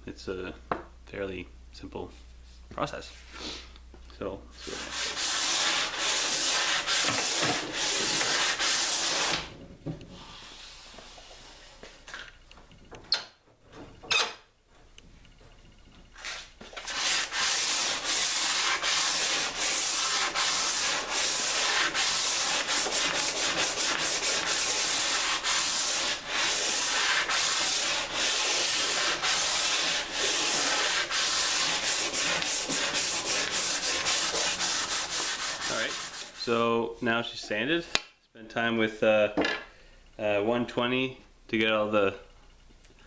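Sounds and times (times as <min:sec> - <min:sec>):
sandpaper rubbing on wood: 0:04.6 - 0:09.5, 0:16.8 - 0:36.6.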